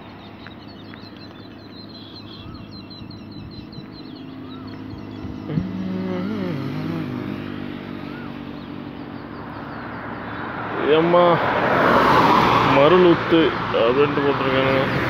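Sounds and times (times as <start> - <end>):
motorcycle engine running: 0.0 - 10.4
small birds chirping: 0.0 - 15.0.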